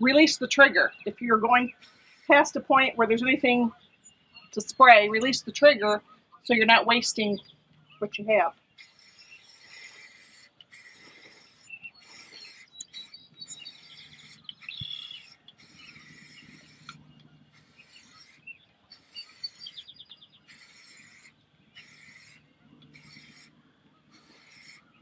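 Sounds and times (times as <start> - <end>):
bird chirping: 0.0 - 25.0
spray can hissing: 8.8 - 17.0, 17.6 - 19.9, 20.5 - 22.4, 23.0 - 23.5, 24.1 - 24.8.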